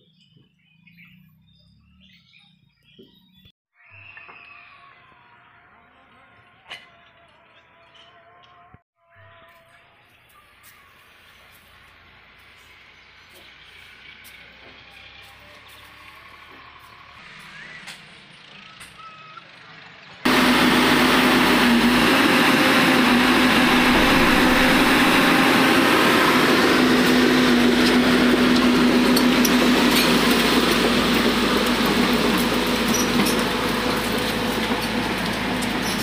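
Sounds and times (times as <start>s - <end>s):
excavator diesel engine running: 11.7s - 36.0s.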